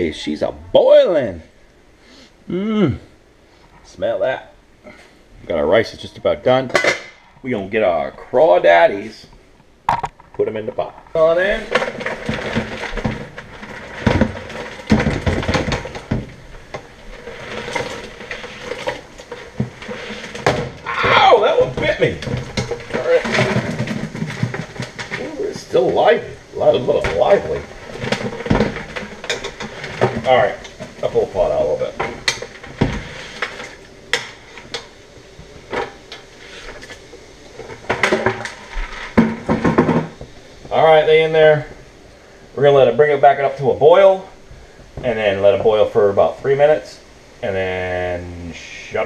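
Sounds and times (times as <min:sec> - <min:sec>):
crawfish shells clattering and scraping: 0:09.9 - 0:41.9.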